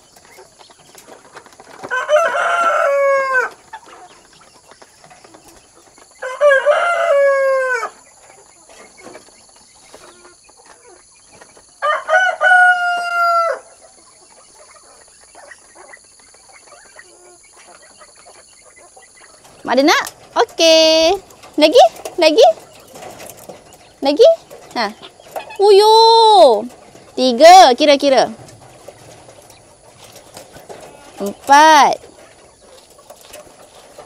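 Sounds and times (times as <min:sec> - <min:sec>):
rooster crowing: 0:01.9 - 0:03.5, 0:06.2 - 0:08.0, 0:11.8 - 0:13.7.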